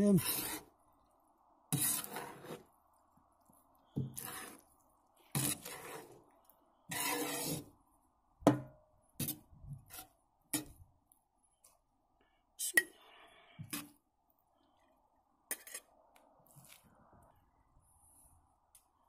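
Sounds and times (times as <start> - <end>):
metal skimmer scraping a pot: 0.1 - 0.7, 1.7 - 2.7, 4.0 - 4.7, 5.3 - 6.2, 6.9 - 7.7.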